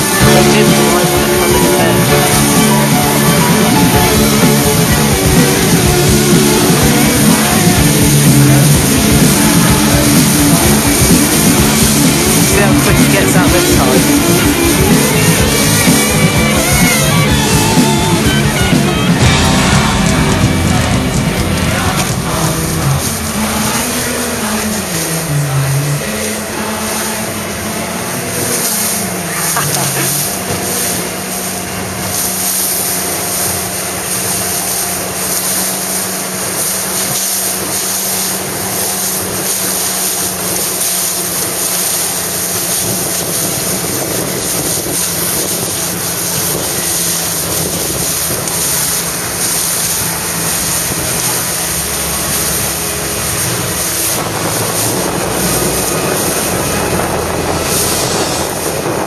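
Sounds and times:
water rushing past boat: 0:00.0 - 0:59.0
wind rushing on microphone: 0:26.6 - 0:59.0.

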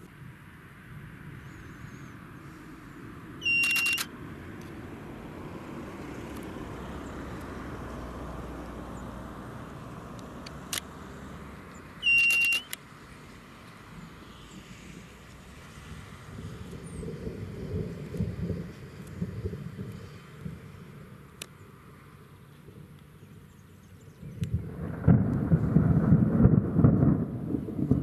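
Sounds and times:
short high beep: 0:03.4 - 0:04.1, 0:12.0 - 0:12.7
quick run of clicks: 0:03.5 - 0:04.1, 0:11.7 - 0:12.8
sharp click: 0:03.5 - 0:04.1, 0:12.0 - 0:12.8
wind buffeting microphone: 0:13.6 - 0:21.4, 0:22.6 - 0:28.0.

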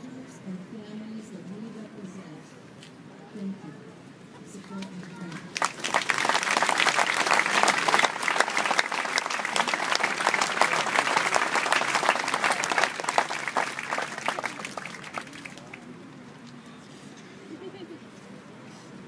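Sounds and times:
audience applauding: 0:05.6 - 0:15.9.

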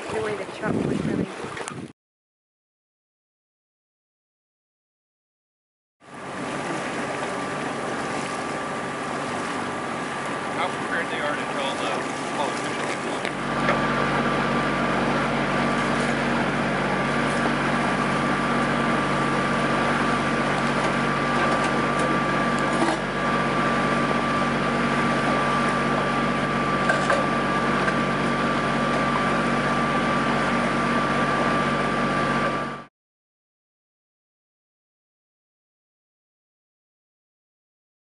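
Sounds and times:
steady mechanical drone: 0:00.0 - 0:01.2, 0:06.0 - 0:32.9
constant hum: 0:00.0 - 0:01.8, 0:06.1 - 0:32.9.

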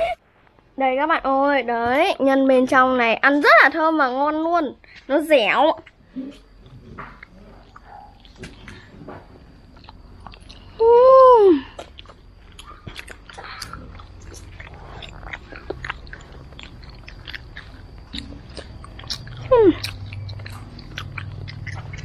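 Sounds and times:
biting and chewing food: 0:05.8 - 0:10.8, 0:11.6 - 0:22.0
wet mouth clicks: 0:11.7 - 0:22.0.

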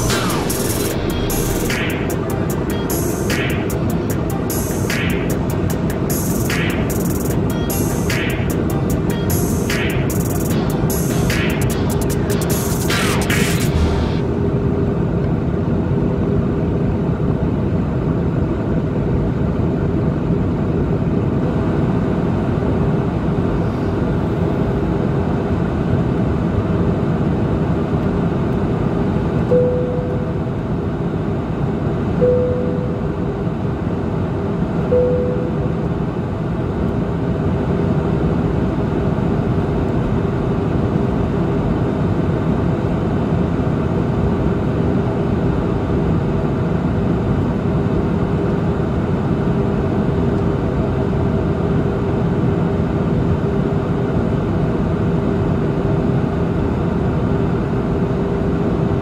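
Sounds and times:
airliner cabin engine noise: 0:00.0 - 0:59.0
short tones: 0:29.5 - 0:30.4, 0:32.2 - 0:33.1, 0:34.9 - 0:35.8.

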